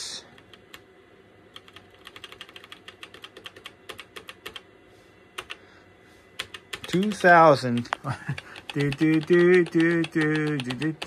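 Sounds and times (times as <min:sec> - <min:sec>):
laptop keyboard typing: 0:00.4 - 0:00.8, 0:01.5 - 0:04.7, 0:05.4 - 0:05.6, 0:06.4 - 0:11.0.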